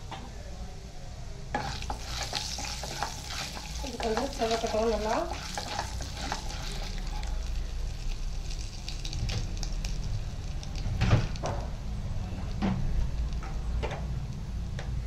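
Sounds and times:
utensil scraping a pan: 1.6 - 7.3
food sizzling in hot oil: 1.6 - 11.9.

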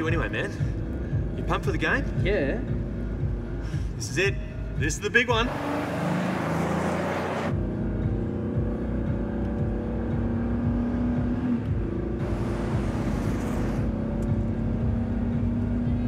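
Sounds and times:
low road rumble: 0.0 - 16.0
car engine running: 5.4 - 16.0.

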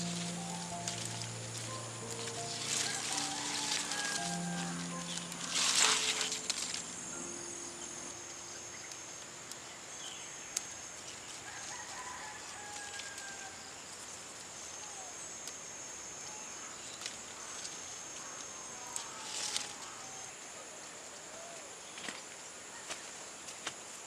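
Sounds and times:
high-pitched insect drone: 0.0 - 9.2.

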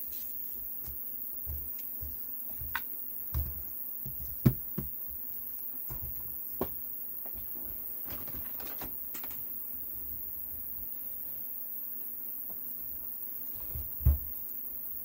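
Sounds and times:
battery pack knocking on mat: 3.4 - 5.0.

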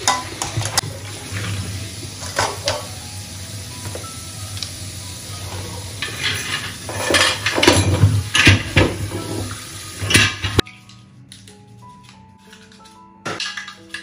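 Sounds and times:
dishes scrubbed: 5.5 - 10.6.

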